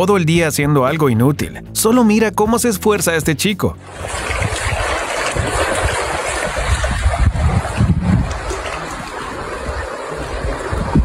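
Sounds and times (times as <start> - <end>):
wind buffeting microphone: 3.8 - 11.0.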